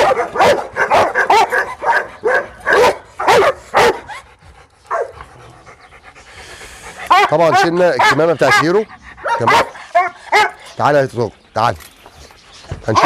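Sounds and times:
dog barking: 0.0 - 4.2, 4.9 - 5.2, 7.1 - 10.6.

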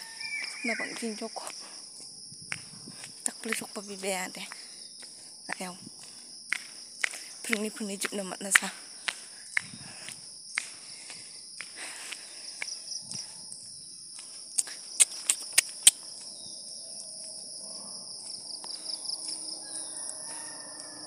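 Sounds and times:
insect chorus buzzing: 0.0 - 21.0
sharp clicks: 14.6 - 16.0.

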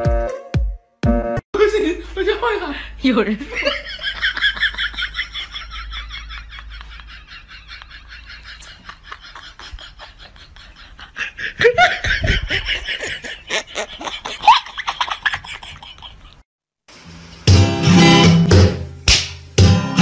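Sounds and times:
person laughing with high squeals: 4.4 - 16.4.

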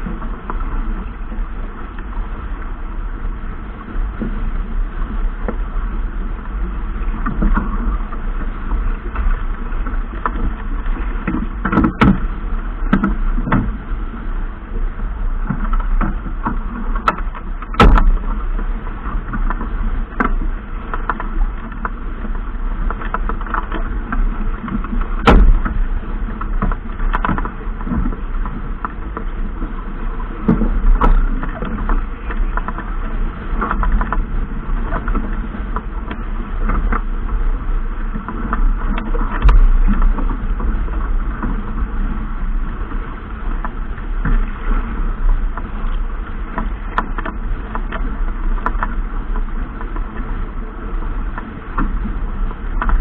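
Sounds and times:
boat engine rumble: 0.0 - 53.0
sharp knocks: 25.2 - 25.8.

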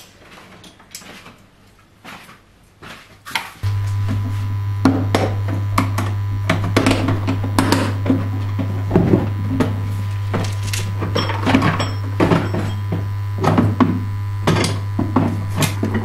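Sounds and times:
low electric hum: 3.6 - 16.0.

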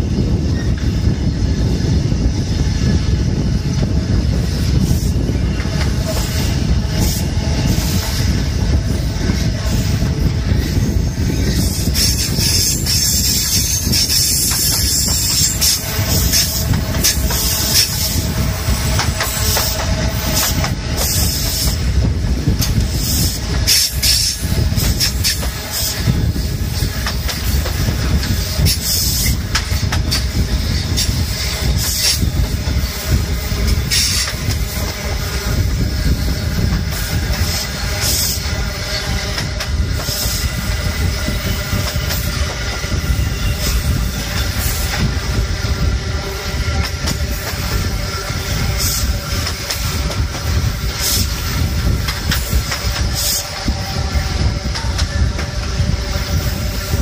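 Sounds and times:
train wheels rumbling on rail: 0.0 - 57.0
sharp rail clicks: 46.8 - 53.8, 54.4 - 55.8.

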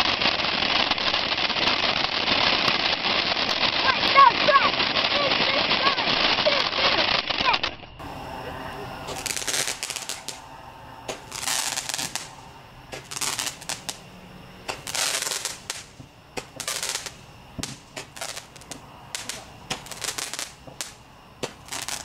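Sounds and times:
firework pops: 0.0 - 8.0, 9.0 - 10.4, 11.0 - 22.0
hissing crackle of sparks: 0.0 - 22.0.

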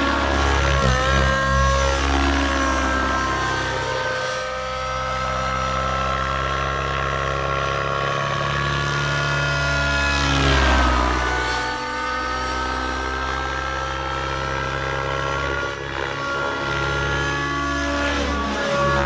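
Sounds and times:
model helicopter engine and rotors: 0.0 - 19.0.

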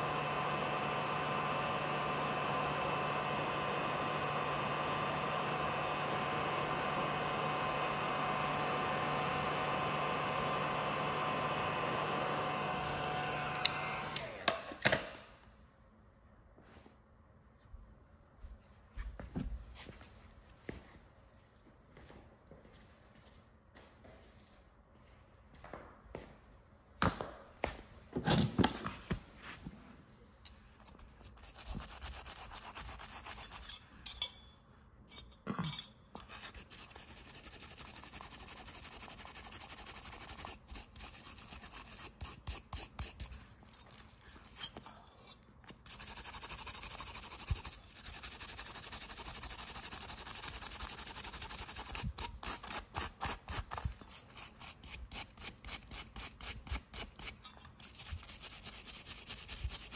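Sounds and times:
wire brush scrubbing metal: 30.8 - 34.2, 36.3 - 59.9.

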